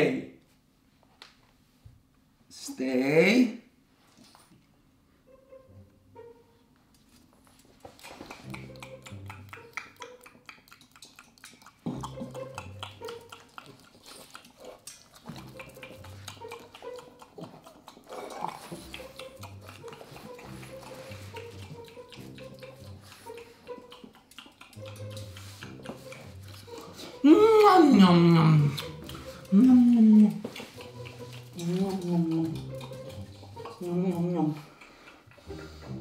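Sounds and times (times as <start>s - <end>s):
dog crunching food: 7.6s - 27.3s, 28.6s - 35.4s
man making eating noises: 7.8s - 36.0s.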